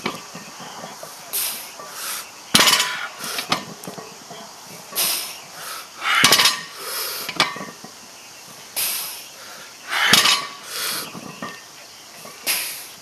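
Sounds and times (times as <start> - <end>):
hard breathing: 1.2 - 3.6, 5.0 - 7.4, 8.8 - 11.2
barbell plates clinking: 2.6 - 5.1, 6.0 - 7.9, 9.9 - 12.6.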